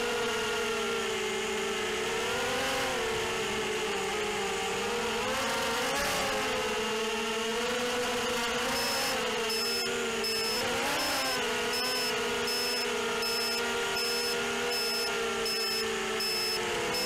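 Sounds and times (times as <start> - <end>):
quadcopter motors whining: 0.0 - 17.0
short high electronic beep: 11.8 - 16.6.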